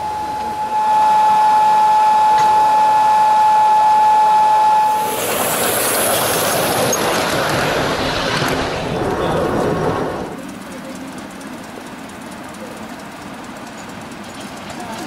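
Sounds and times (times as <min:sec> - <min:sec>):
high steady train whistle: 0:00.0 - 0:07.0.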